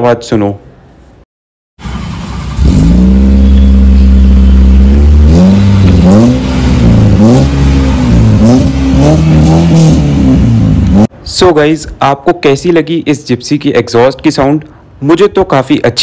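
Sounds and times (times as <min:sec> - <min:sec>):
car engine revving: 0:01.8 - 0:11.1.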